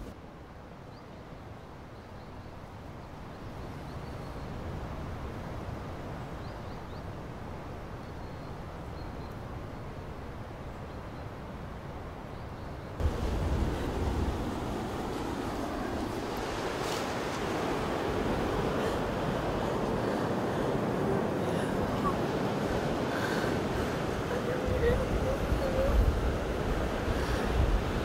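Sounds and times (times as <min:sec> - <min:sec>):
wind: 0:00.0 - 0:28.0
surf: 0:13.0 - 0:28.0.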